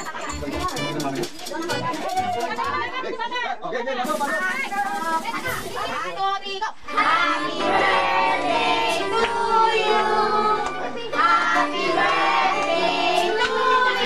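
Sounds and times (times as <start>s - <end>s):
group singing with children: 6.9s - 14.0s.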